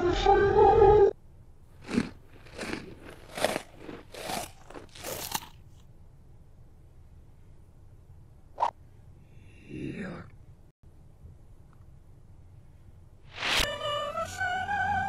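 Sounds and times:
reversed crunching rustling noises: 1.8 - 5.8.

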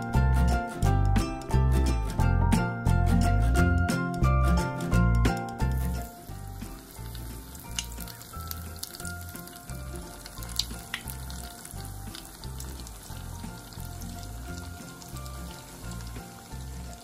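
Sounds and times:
background music with bass: 0.0 - 17.0
oil sizzling and crackling: 4.2 - 17.0
oil popping: 5.4 - 17.0.

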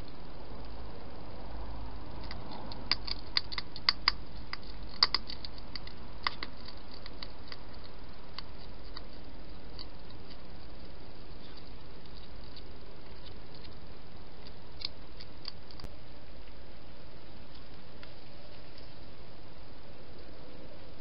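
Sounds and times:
hedgehog chewing food: 2.1 - 15.9.

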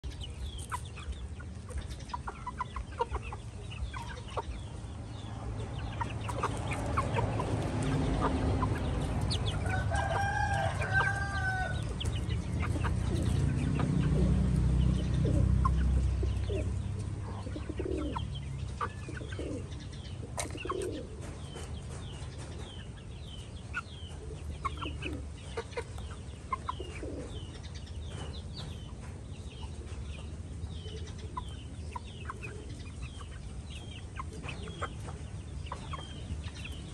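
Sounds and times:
chickens clucking: 0.0 - 36.9
rooster crowing: 9.6 - 11.9.

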